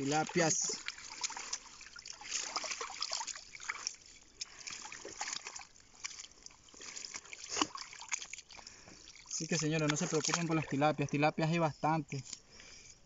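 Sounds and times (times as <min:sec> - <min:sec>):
small drips: 0:00.0 - 0:11.1
water trickling off fishing net: 0:00.0 - 0:11.3.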